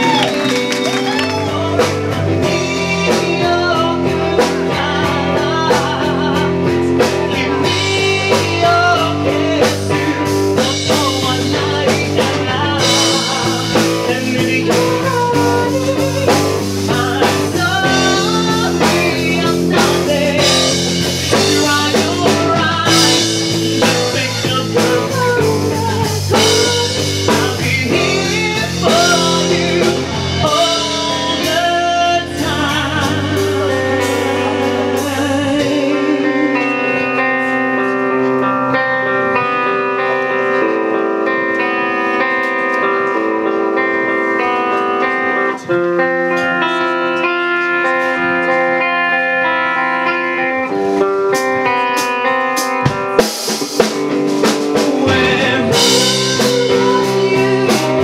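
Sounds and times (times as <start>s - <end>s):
man singing into a microphone: 0.0s - 41.4s, 54.4s - 58.0s
drum kit: 0.0s - 58.0s
electric guitar: 0.0s - 58.0s.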